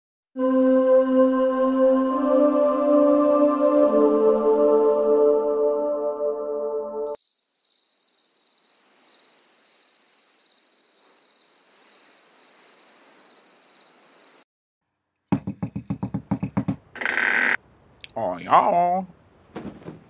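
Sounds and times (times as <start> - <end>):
crickets chirping: 7.1 - 14.4.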